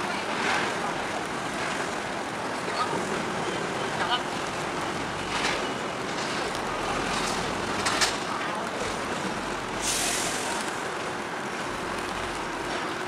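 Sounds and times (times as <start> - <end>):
boat engines running: 0.0 - 13.0
short hiss: 9.8 - 10.6.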